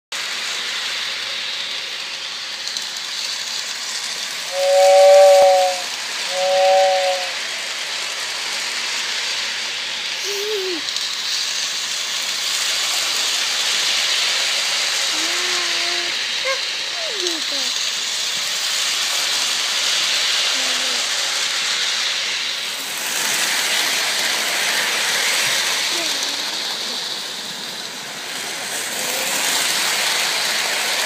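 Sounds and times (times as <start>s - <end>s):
toy steam locomotive hissing: 0.2s - 31.0s
two-note train whistle: 4.5s - 7.4s.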